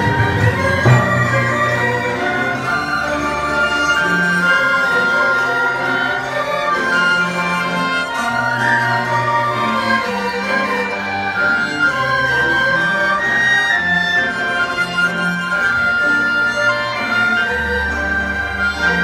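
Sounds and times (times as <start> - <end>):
bowed string accompaniment: 0.0 - 19.0
sheng long held notes: 0.0 - 19.0.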